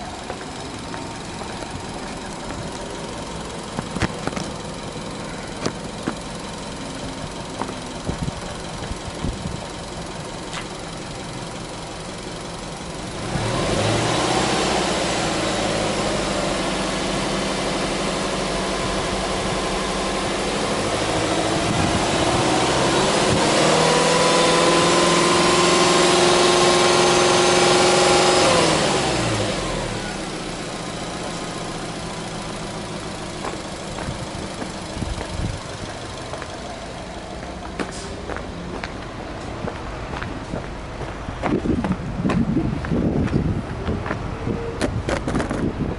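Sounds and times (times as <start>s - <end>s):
car engine idling and revving: 0.0s - 45.9s.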